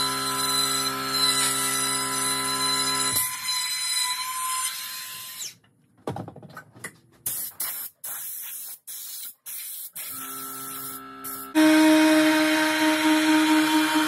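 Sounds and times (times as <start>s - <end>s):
cordless power tool hissing: 9.9s - 14.0s.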